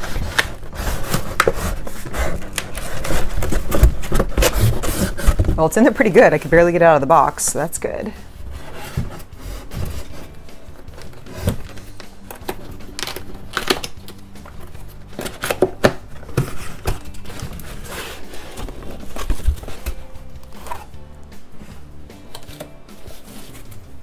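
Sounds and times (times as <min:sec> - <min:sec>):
knocks and rustles: 0:00.0 - 0:05.6, 0:14.4 - 0:20.9
cardboard box scraping: 0:00.0 - 0:05.9, 0:08.1 - 0:12.0, 0:14.7 - 0:21.0, 0:22.6 - 0:24.0
background music: 0:00.0 - 0:24.0.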